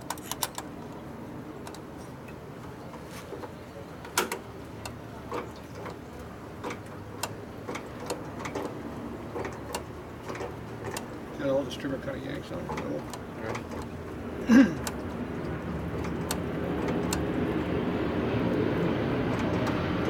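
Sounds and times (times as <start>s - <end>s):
metal parts clicking and tapping: 0.0s - 1.0s.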